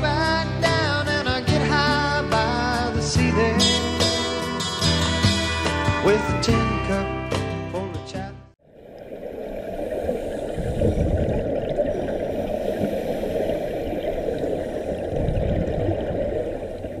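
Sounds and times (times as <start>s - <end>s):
muffled underwater gurgling: 8.7s - 17.0s.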